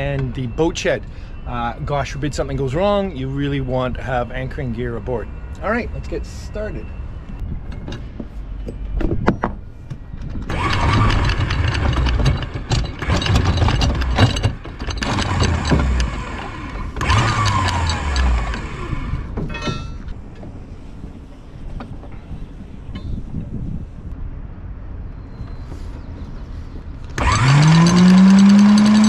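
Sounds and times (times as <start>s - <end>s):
electric anchor windlass running: 9.0s - 23.9s, 27.0s - 29.0s
anchor chain links rattling: 10.4s - 18.7s, 27.2s - 29.0s.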